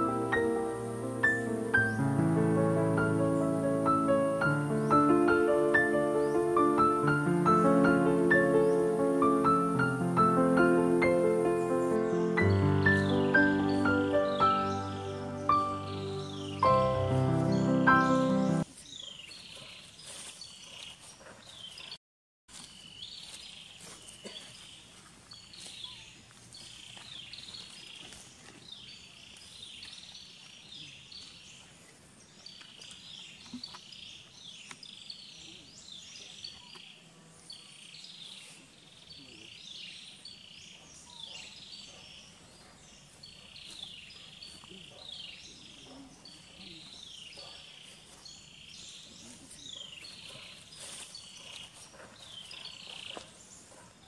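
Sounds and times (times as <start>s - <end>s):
birds chirping: 0.0s - 21.9s.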